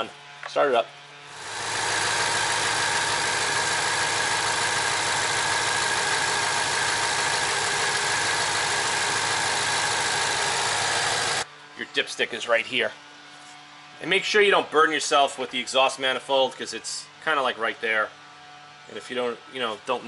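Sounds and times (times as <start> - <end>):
car engine idling: 1.4 - 11.4.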